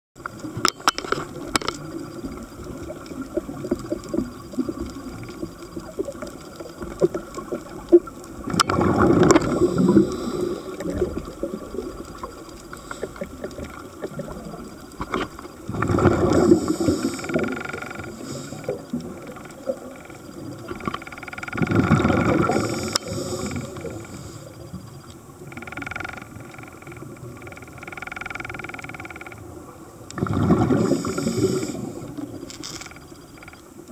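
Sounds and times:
crackling clicks underwater: 0.2 - 33.9
bubbling regulator exhalations: 7.0 - 14.7, 15.7 - 19.8, 21.6 - 24.3, 30.1 - 32.4
hissing regulator breaths: 9.5 - 10.9, 16.2 - 19.0, 22.4 - 24.7, 30.8 - 32.3.

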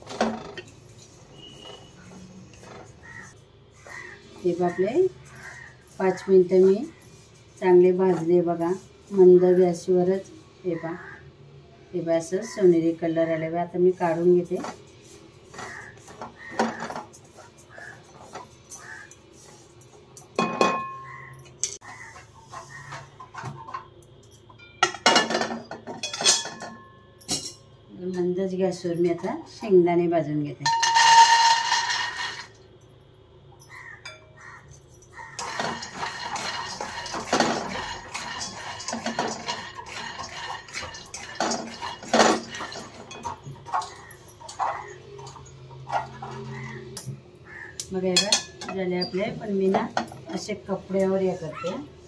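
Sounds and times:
pan clanging: 20.3 - 21.9, 22.6 - 27.6, 30.6 - 32.5, 35.0 - 47.1
pan clattering on burner: 30.6 - 32.5, 35.2 - 46.2
metal spatula scraping pan: 35.3 - 44.7.

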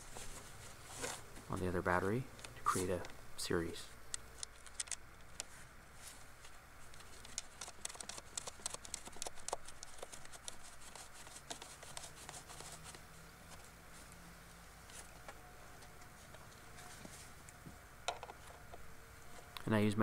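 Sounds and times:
leather gloves rubbing: 5.3 - 14.2.

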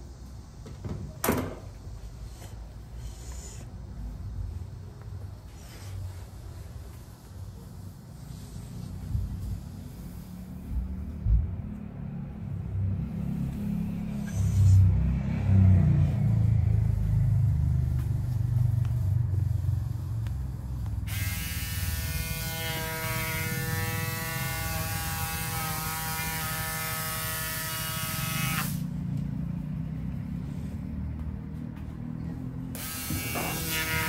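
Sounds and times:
small electric motor whining: 21.0 - 28.9, 32.7 - 34.0.

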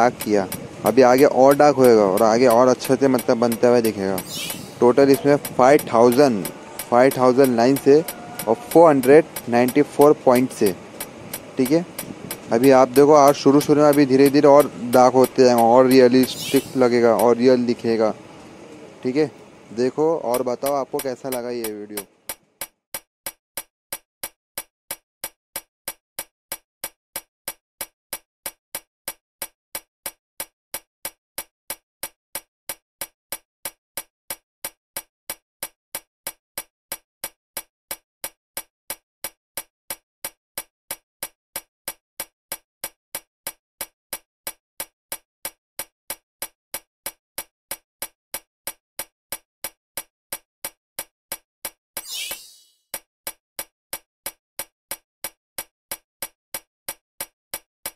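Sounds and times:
sharp steady ticking: 0.0 - 18.2, 19.1 - 51.8, 52.9 - 57.9.

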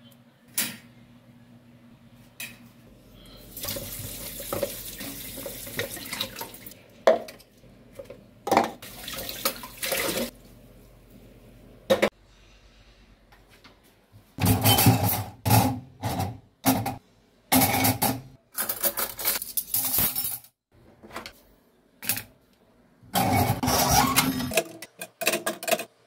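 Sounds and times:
cutlery clattering in wire rack: 17.6 - 20.6.

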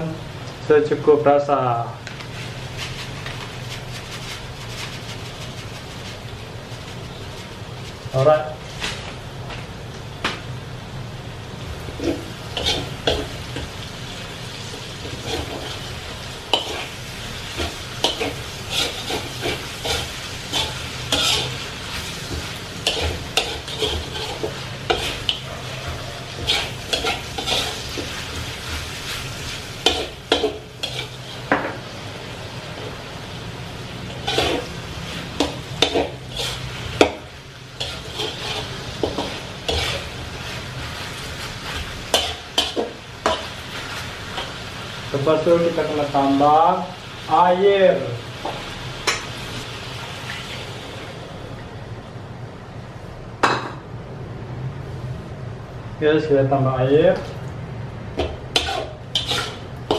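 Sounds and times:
food sizzling in wok: 2.2 - 51.5, 57.8 - 59.9
metal spatula scraping wok: 11.9 - 13.7, 14.7 - 31.5, 34.0 - 44.6, 58.5 - 59.9.

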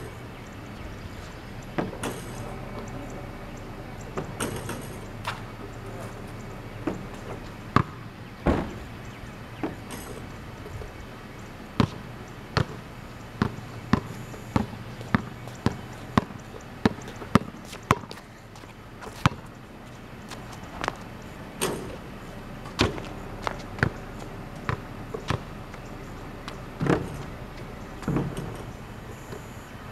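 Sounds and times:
basketball bouncing on concrete: 6.8 - 8.9, 11.8 - 19.6, 22.7 - 25.8, 26.4 - 28.6.

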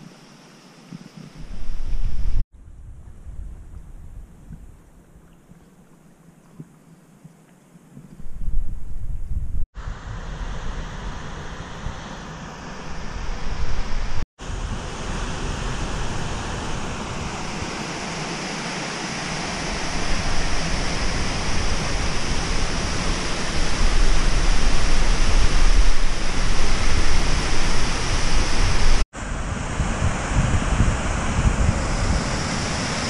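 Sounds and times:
waterfall rushing: 14.0 - 29.0.

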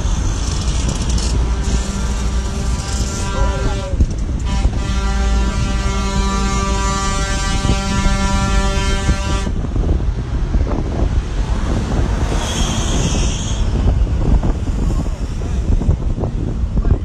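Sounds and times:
traffic rumble: 0.0 - 17.0
wind: 0.0 - 17.0
vehicle horn blast: 1.2 - 9.6, 12.2 - 13.9.

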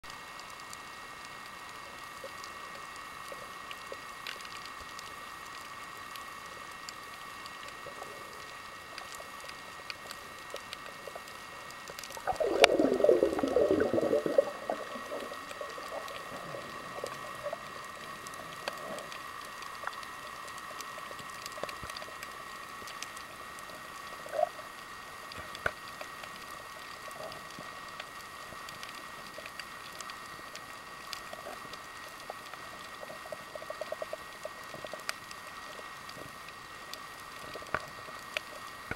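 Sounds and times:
faint clicks and crackles: 0.0 - 38.9
gurgling rush of air bubbles: 12.2 - 18.0
underwater two-note hum: 12.2 - 18.8.

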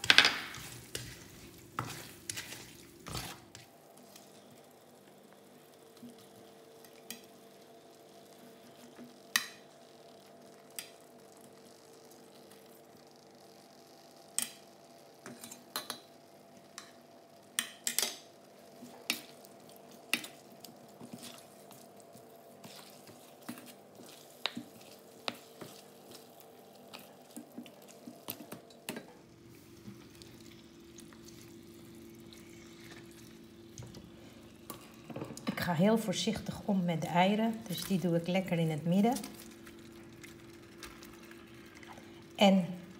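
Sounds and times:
steady hum: 18.3 - 42.9.

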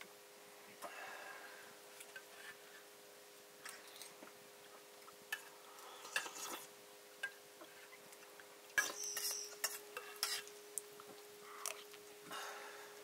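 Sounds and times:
metal dishes and utensils clinking: 8.8 - 10.5.

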